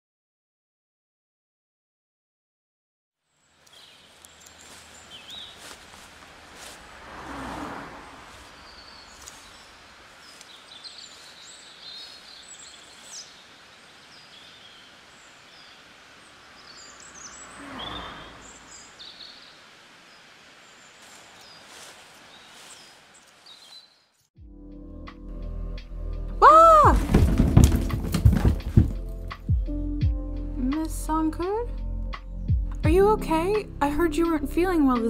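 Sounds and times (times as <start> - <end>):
small birds chirping: 3.3 - 6.9, 8.0 - 24.3
soft rustling: 3.6 - 7.0, 8.1 - 13.2, 20.9 - 23.9.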